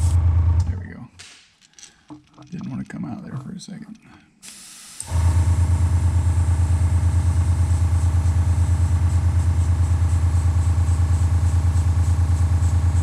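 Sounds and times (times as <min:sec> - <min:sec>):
air compressor humming: 0:04.4 - 0:13.0.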